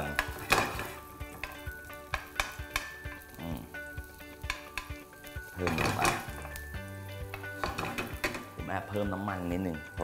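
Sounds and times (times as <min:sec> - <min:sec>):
metal spoon scraping a pan: 0:00.0 - 0:03.4, 0:04.1 - 0:08.6
garlic sizzling in oil: 0:00.0 - 0:10.0.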